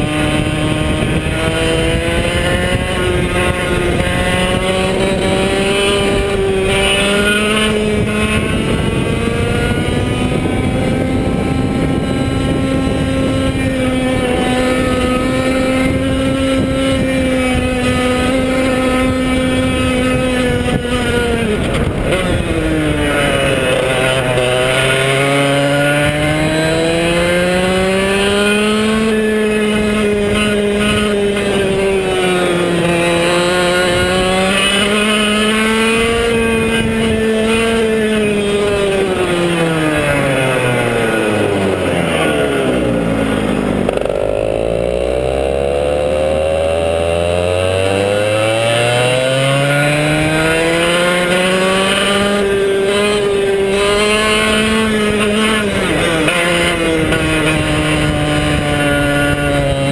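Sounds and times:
kart engine revving: 0.0 - 59.9.

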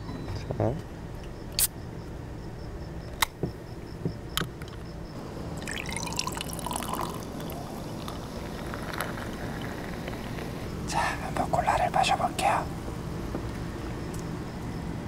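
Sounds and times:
cola pouring and fizzing: 5.4 - 10.9.

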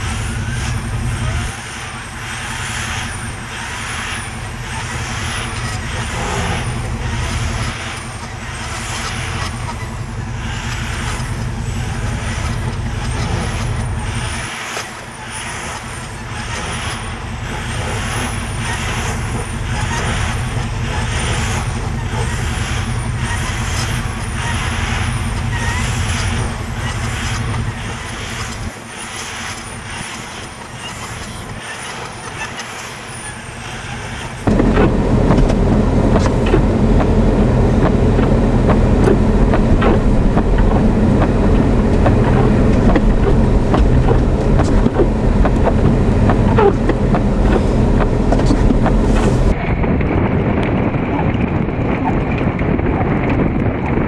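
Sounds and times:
diesel truck engine under load: 0.0 - 54.0
high rising and falling tone: 34.0 - 49.6
wind buffeting microphone: 34.4 - 54.0.

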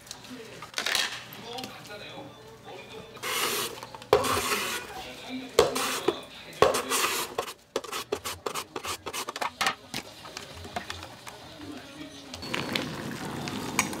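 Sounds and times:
carrot rasping on mandoline slicer: 3.2 - 5.0, 5.6 - 9.5.

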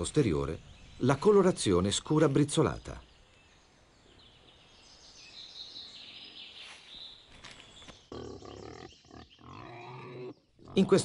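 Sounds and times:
birds chirping: 0.0 - 11.0
wild boar grunting: 8.1 - 11.0.

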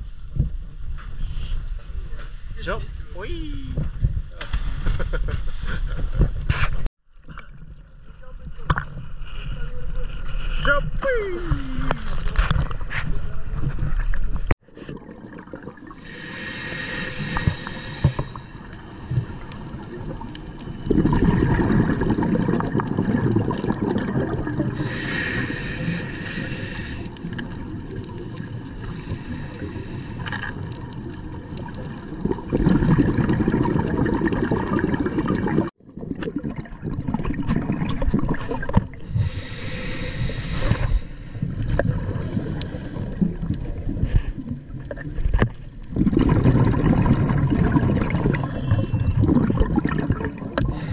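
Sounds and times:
gurgling bubbles: 13.6 - 50.9
underwater rushing water: 13.8 - 50.9.

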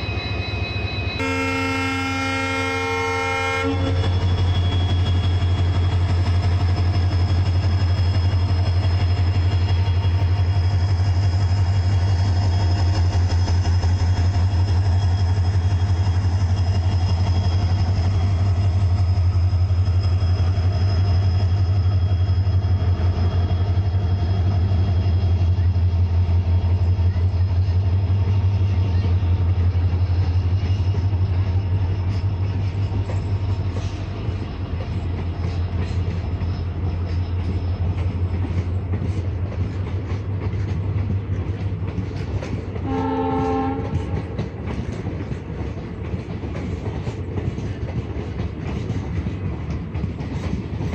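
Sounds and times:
diesel locomotive engine throb: 0.0 - 50.9
wheels clicking over rail joints: 30.5 - 50.9.

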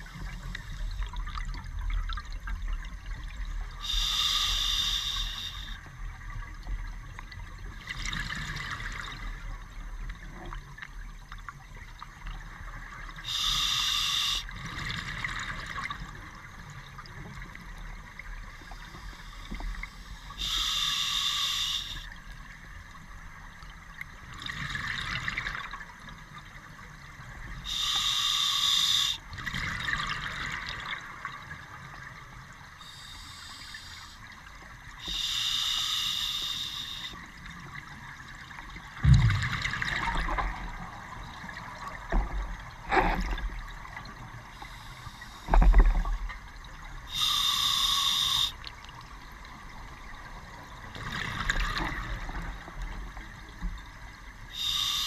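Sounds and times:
regulator hissing: 3.8 - 5.8, 13.3 - 14.4, 27.7 - 29.2, 47.2 - 48.6, 54.6 - 55.0.

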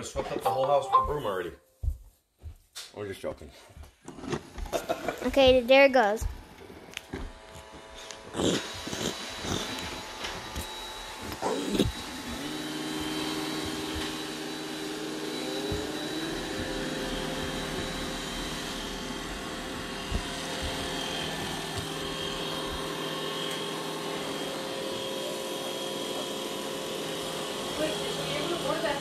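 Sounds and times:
robot vacuum motor hum: 7.1 - 29.0.

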